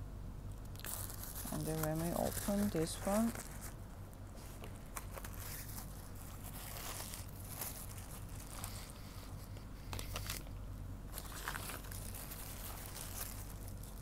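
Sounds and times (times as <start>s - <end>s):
small crackles: 0.6s - 14.0s
wrap crinkling and rustling: 0.8s - 9.4s, 11.1s - 14.0s.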